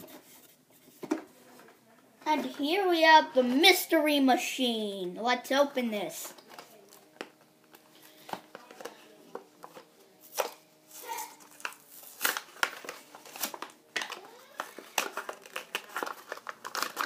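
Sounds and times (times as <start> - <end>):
plastic packaging crinkling and tearing: 8.0 - 17.0.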